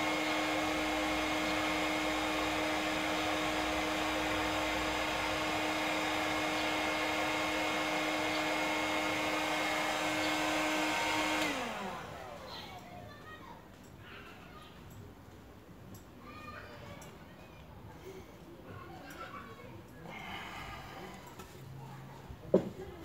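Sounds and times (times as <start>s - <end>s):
motor winding down: 0.0s - 12.6s
heat gun fan humming: 0.0s - 12.9s.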